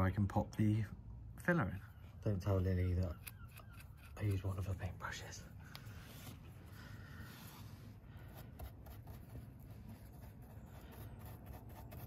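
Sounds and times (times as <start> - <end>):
paintbrush brushing on metal: 7.4 - 12.0.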